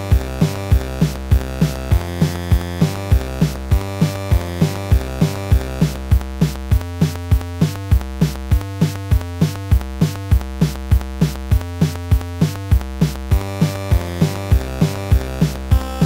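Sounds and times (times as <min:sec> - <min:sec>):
drum-machine beat: 0:00.0 - 0:16.0
synthesizer lines: 0:00.0 - 0:16.0
kick drum: 0:00.1 - 0:16.0.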